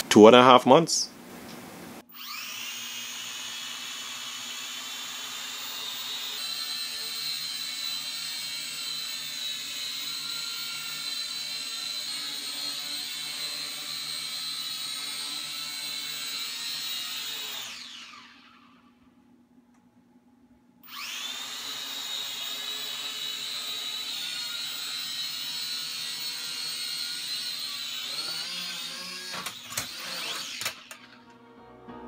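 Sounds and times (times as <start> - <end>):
drone propellers whining: 20.9 - 31.2.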